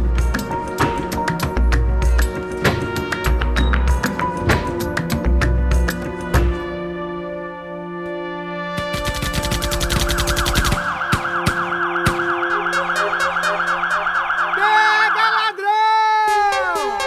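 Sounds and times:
fast clicking pulse: 0:08.8 - 0:13.8
rising siren-like warble: 0:10.1 - 0:15.4.

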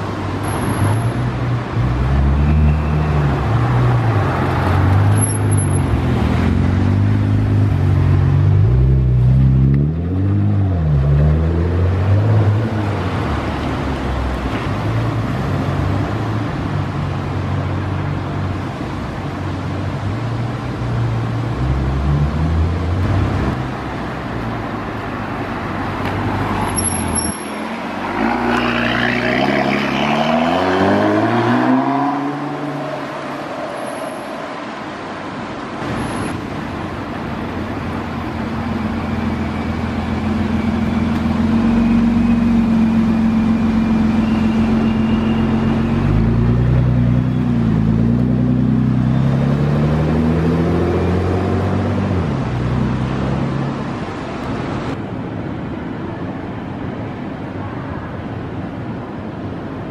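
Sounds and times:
car accelerating away: 0:28.0 - 0:33.4, 0:46.2 - 0:53.6.

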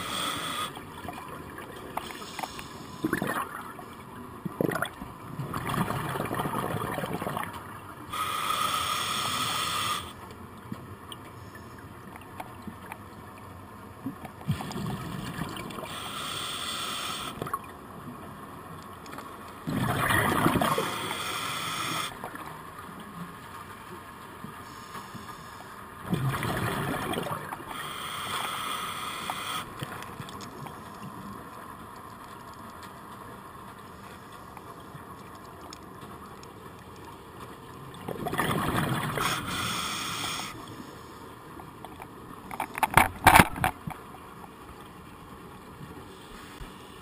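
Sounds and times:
regulator hissing inhale: 0:00.0 - 0:00.9, 0:02.0 - 0:03.1, 0:08.1 - 0:10.2, 0:15.8 - 0:17.4, 0:20.8 - 0:22.2, 0:24.6 - 0:25.8, 0:27.6 - 0:29.8, 0:39.2 - 0:41.4, 0:46.1 - 0:47.0.

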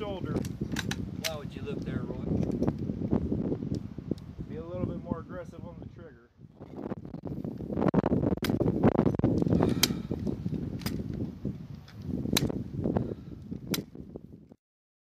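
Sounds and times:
wind buffeting microphone: 0:00.0 - 0:14.6
rifle stock clicking: 0:00.4 - 0:01.4, 0:09.8 - 0:11.2.

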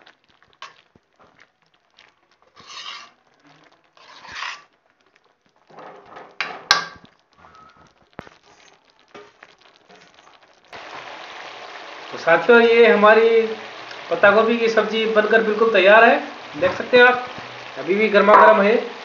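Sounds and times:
metal spatula scraping pan: 0:02.5 - 0:03.2, 0:04.0 - 0:04.8.

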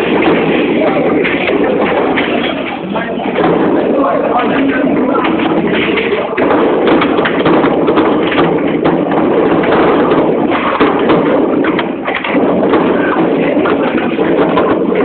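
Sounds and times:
background din: 0:00.0 - 0:15.0
foosball ball and figures clacking: 0:00.0 - 0:15.0
foosball rods knocking: 0:00.0 - 0:15.0.

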